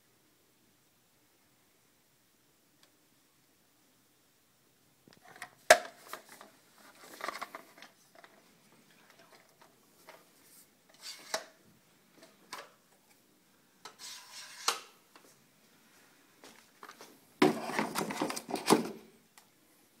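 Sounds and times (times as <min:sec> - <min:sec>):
short scrape: 0:14.0 - 0:14.9.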